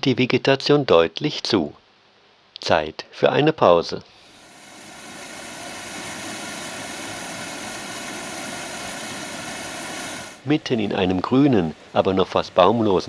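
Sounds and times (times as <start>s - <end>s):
stream rushing over rocks: 4.3s - 10.4s.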